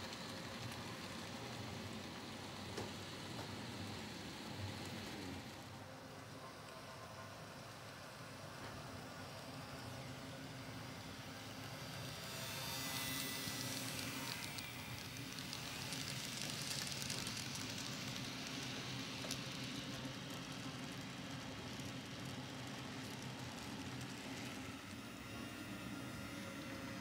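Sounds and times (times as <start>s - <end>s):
model train wheels rattling: 0.0s - 5.7s, 11.2s - 27.0s.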